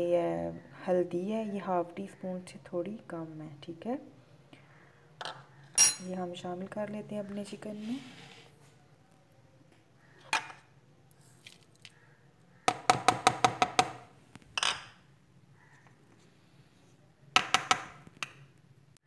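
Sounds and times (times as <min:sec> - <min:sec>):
spice bowls clinking: 0:05.8 - 0:06.2.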